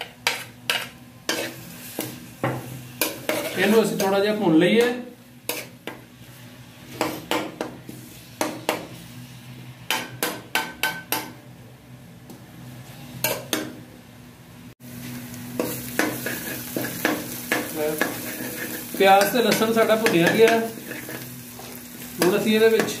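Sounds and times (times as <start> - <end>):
metal spoon scraping a pan: 0.0 - 2.2, 3.0 - 4.2, 5.5 - 5.8, 15.6 - 23.0
onions sizzling in oil: 0.0 - 9.8, 14.8 - 23.0.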